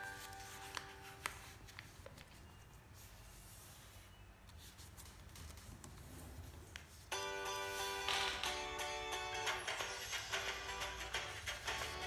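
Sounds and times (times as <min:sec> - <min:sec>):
paper rustling and folding: 0:00.0 - 0:07.1.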